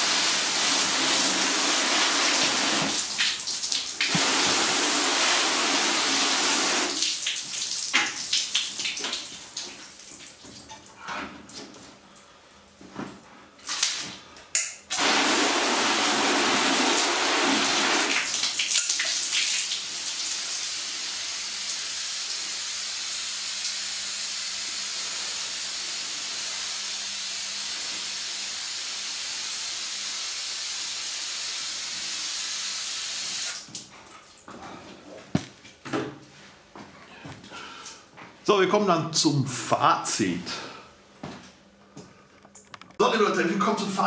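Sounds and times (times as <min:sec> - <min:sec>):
hose water spraying on car: 0:00.0 - 0:08.1, 0:14.9 - 0:18.5.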